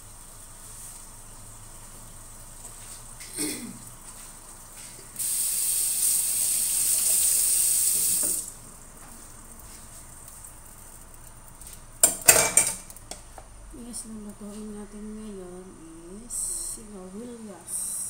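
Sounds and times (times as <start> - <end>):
tap water running: 0.0 - 13.2.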